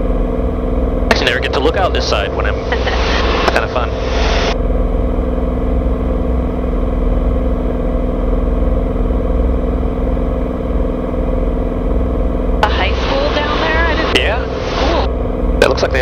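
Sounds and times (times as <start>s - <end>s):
propeller plane engine drone: 0.0s - 16.0s.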